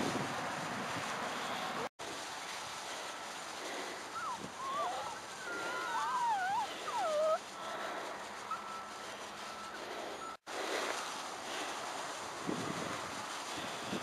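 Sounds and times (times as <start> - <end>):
wind on microphone: 0.0 - 1.8, 3.5 - 7.4, 12.2 - 14.0
puppies whining: 4.1 - 7.5, 8.4 - 9.8.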